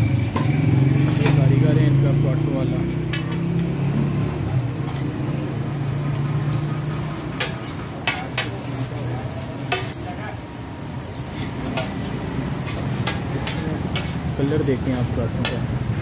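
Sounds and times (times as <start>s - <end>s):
flatbread sizzling on griddle: 0.0s - 16.0s
metal spatula scraping griddle: 0.3s - 1.6s, 5.8s - 10.4s, 11.0s - 15.8s.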